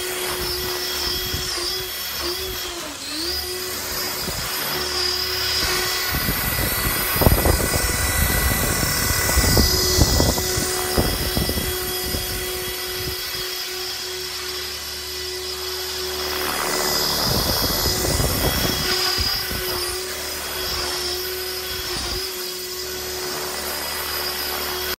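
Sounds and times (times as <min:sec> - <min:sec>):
rc helicopter whine: 0:00.0 - 0:25.0
rotor blade whooshes: 0:15.8 - 0:25.0.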